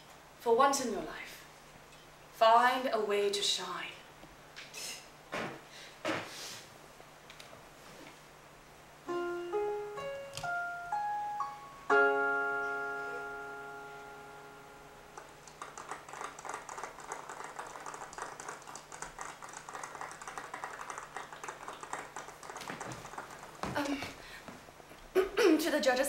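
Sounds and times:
piano notes and chord: 0:09.0 - 0:15.5.

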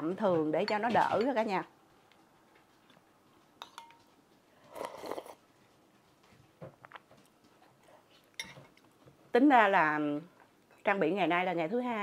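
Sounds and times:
light spoon taps: 0:03.6 - 0:04.1
spoon clinking glass bowl: 0:03.6 - 0:04.1, 0:08.4 - 0:08.7
slurp: 0:04.7 - 0:05.4.

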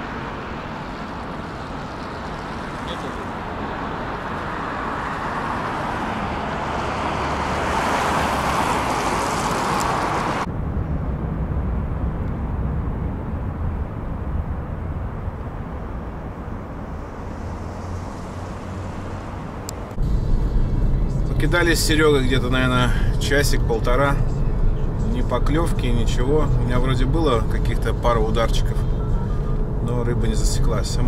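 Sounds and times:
distant city traffic rush: 0:00.0 - 0:31.0
low uneven rumble: 0:10.4 - 0:31.0.

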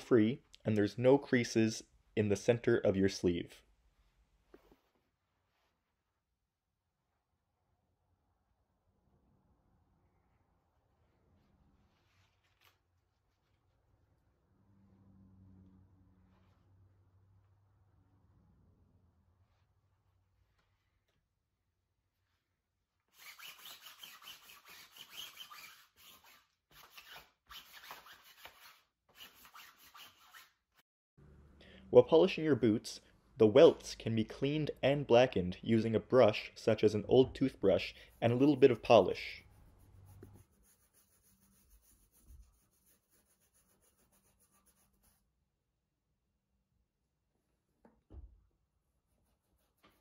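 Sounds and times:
toothbrush scrubbing leather boot: 0:37.6 - 0:45.2
lint roller rasping on fabric: 0:37.7 - 0:45.2.

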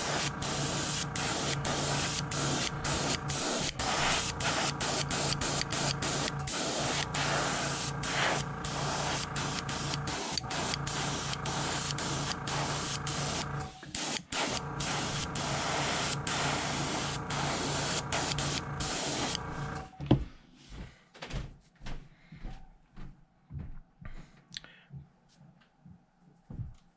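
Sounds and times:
airbrush spraying hiss: 0:00.0 - 0:19.8
steady hum: 0:00.0 - 0:19.9.

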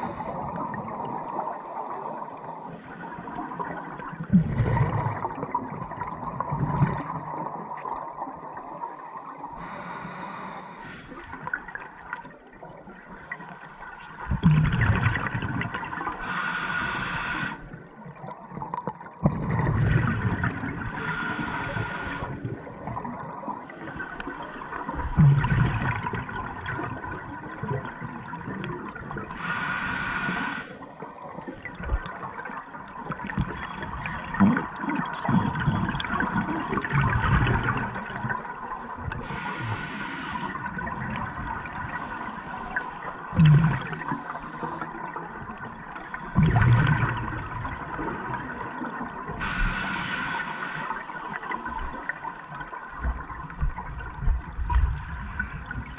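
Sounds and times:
regulator breathing hiss: 0:09.6 - 0:11.2, 0:16.2 - 0:17.7, 0:20.9 - 0:22.4, 0:29.4 - 0:30.8, 0:39.2 - 0:40.6, 0:49.4 - 0:51.1
low bubbling: 0:43.4 - 0:44.1.

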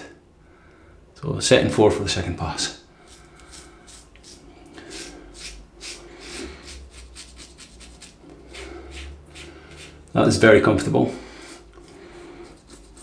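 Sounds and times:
razor scraping stubble: 0:03.0 - 0:10.3, 0:11.4 - 0:13.0.

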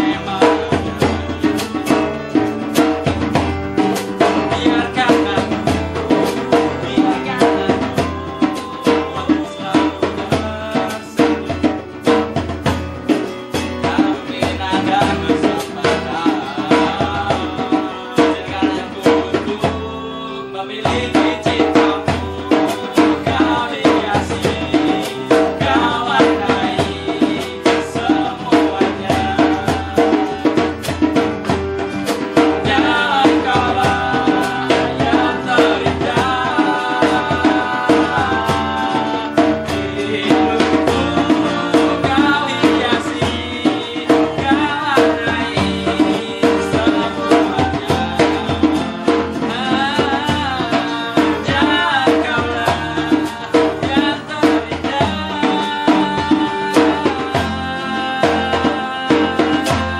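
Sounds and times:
hand drum tapping: 0:00.0 - 0:19.9, 0:20.6 - 0:59.9
strummed classical guitar: 0:00.0 - 0:59.9
two men singing: 0:00.0 - 0:59.9.

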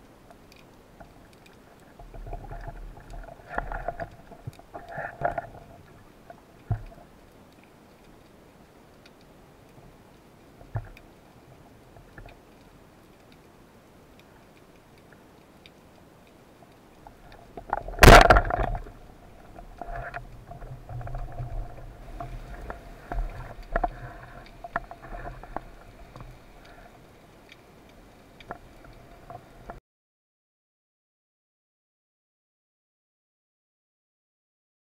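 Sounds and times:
underwater hiss and clicks: 0:00.0 - 0:29.8
spear shaft knocks and rattles: 0:17.6 - 0:18.9
speargun firing crack: 0:18.0 - 0:18.8.

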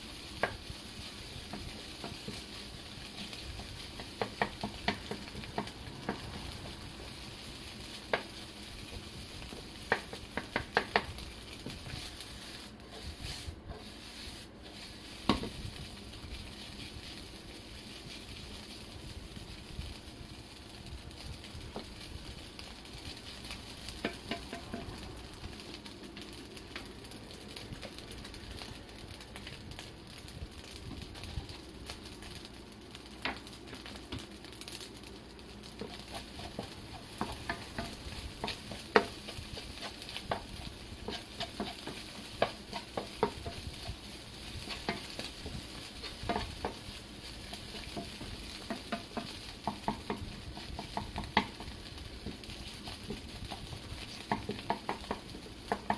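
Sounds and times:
rice sizzling in a frying pan: 0:00.0 - 0:55.9
spatula tapping and scraping pan: 0:00.2 - 0:07.3, 0:07.9 - 0:17.2, 0:22.6 - 0:26.9, 0:33.2 - 0:34.2, 0:35.7 - 0:55.9.

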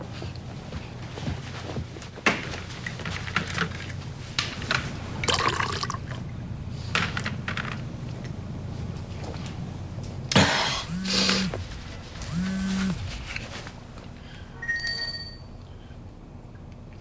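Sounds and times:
liquid pouring into glass: 0:05.3 - 0:06.1.

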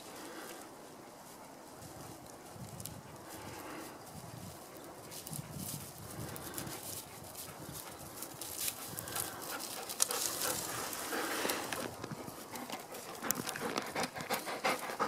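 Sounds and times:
footsteps on dry grass: 0:00.0 - 0:14.9
dog panting: 0:06.2 - 0:15.0.

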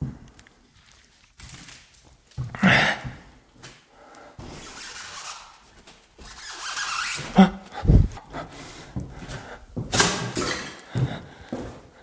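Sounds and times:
rubbing and scraping: 0:04.5 - 0:08.2.

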